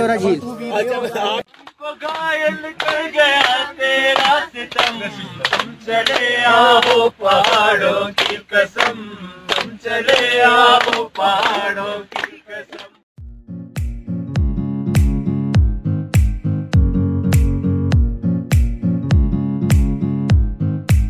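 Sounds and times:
man singing: 1.3 - 13.0
music with sharp regular beat: 13.3 - 21.0.

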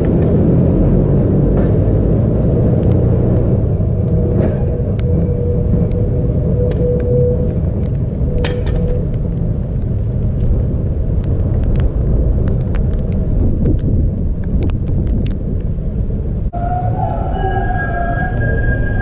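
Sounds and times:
wind buffeting microphone: 0.0 - 19.0
faint pitched tone: 16.6 - 19.0.

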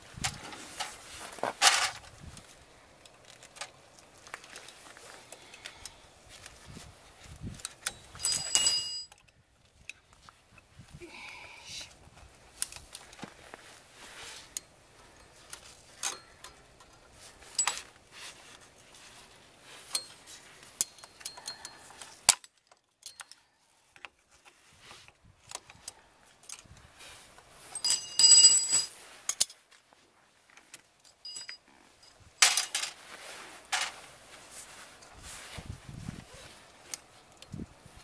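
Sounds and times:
ringing metallic jingle: 8.2 - 9.1, 27.8 - 28.9, 31.2 - 32.2
pliers clicking on metal springs: 20.8 - 23.4.

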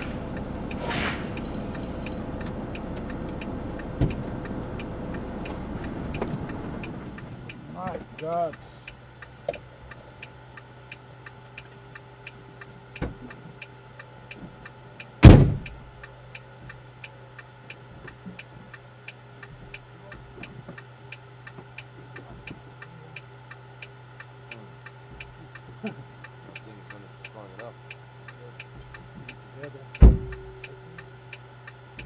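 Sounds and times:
truck engine idling: 0.0 - 32.0
sharp loud bang: 15.2 - 15.8, 30.0 - 30.6.

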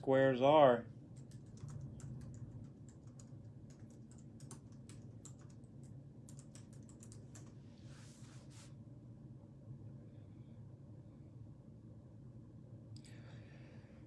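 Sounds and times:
typing on keyboard: 1.1 - 7.6
soft rustle: 7.6 - 8.8.

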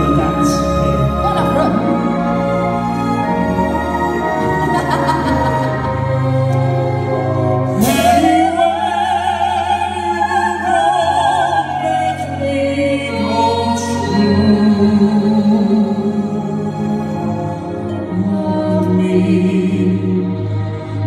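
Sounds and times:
backing music: 0.0 - 21.0
man singing: 7.8 - 10.2
woman singing with vibrato: 7.8 - 17.2.

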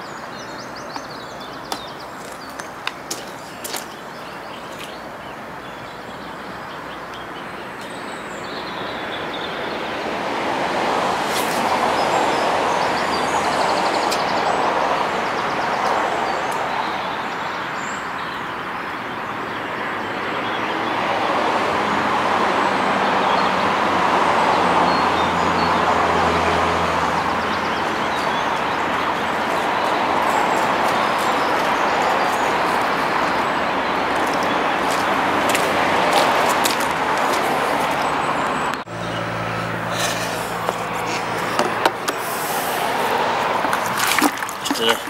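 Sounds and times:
low engine hum: 22.8 - 45.0
passing vehicle hiss: 38.9 - 44.1.

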